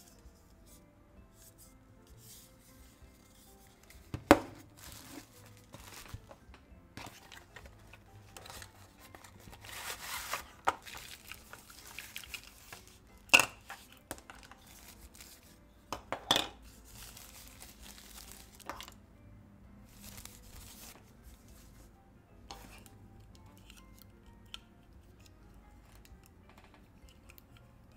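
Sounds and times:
tissue paper crinkling: 3.2 - 6.4, 8.4 - 13.0, 16.7 - 18.7, 19.9 - 21.0
card box opening: 7.0 - 12.8.

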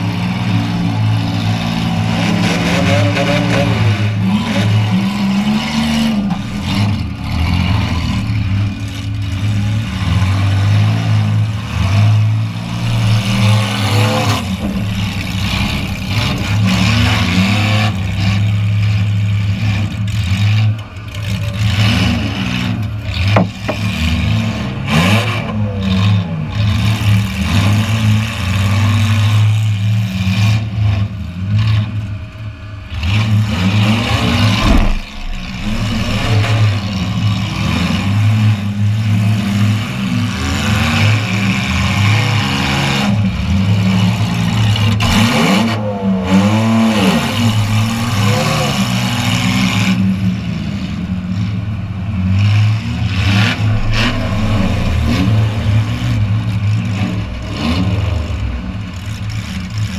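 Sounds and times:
car engine revving: 0.0 - 59.9
sharp knocks: 34.4 - 37.9.

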